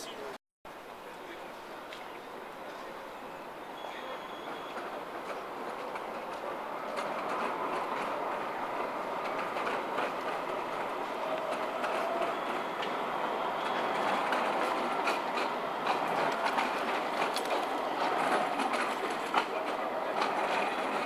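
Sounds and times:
tram rumbling: 0.0s - 21.0s
faint thin wheel squeal: 3.7s - 5.0s
wheels clicking over rails: 4.2s - 21.0s.

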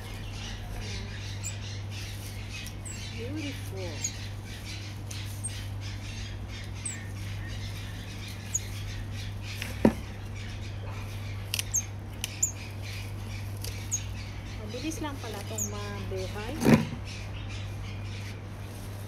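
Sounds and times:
small birds chirping: 0.0s - 19.0s
pruning shears clicking: 11.4s - 12.4s.

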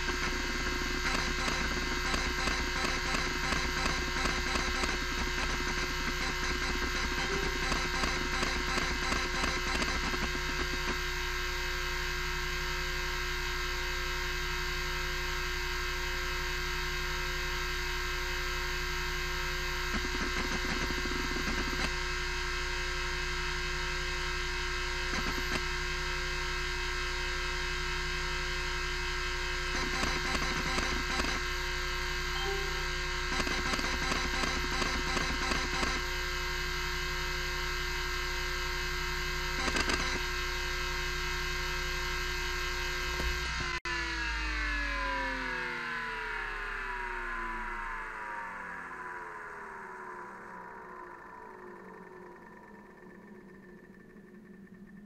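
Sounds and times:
hard drive motor humming: 0.0s - 43.8s.

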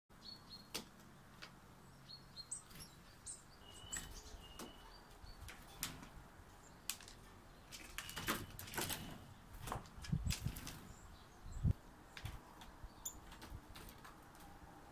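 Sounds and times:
birds chirping: 0.1s - 14.9s
birds pecking taps: 0.7s - 1.6s, 6.8s - 10.8s
thin whistled bird notes: 2.0s - 5.4s.

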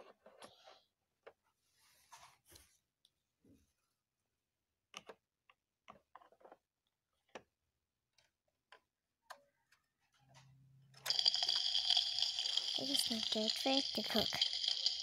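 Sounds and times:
toy knob turning: 11.0s - 15.0s.

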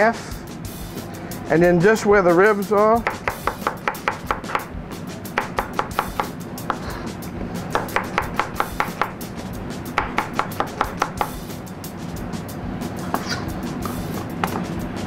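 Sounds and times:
knife tapping on cutting board: 3.0s - 4.7s, 5.4s - 6.9s, 7.7s - 9.2s, 10.0s - 11.4s
knife slicing onion: 5.3s - 9.3s.

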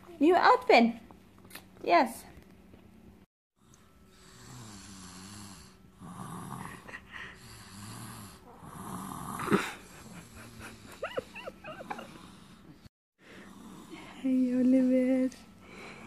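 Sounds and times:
toddler snoring: 4.1s - 14.2s.

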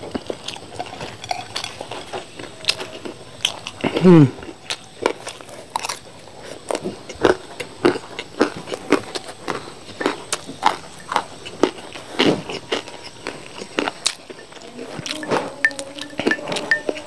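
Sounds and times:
person chewing crunchy food: 0.0s - 17.0s.

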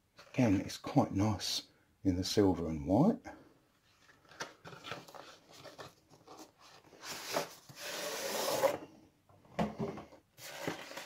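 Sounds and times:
cardboard lid rubbing: 7.0s - 8.8s.

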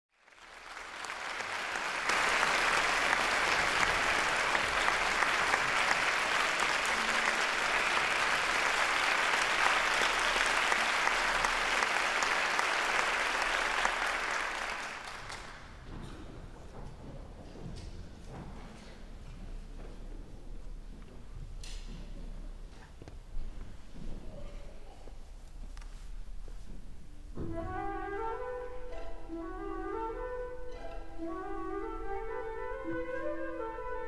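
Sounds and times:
audience applauding: 0.1s - 15.8s.

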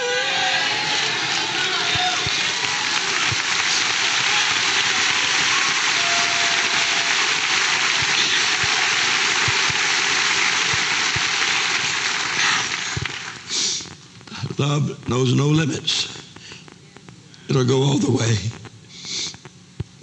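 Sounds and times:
crowd applauding: 0.0s - 13.5s.

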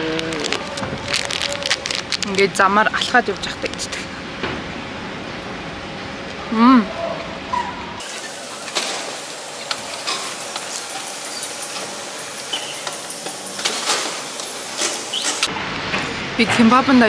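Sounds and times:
food wrapper crinkling: 0.0s - 4.0s.

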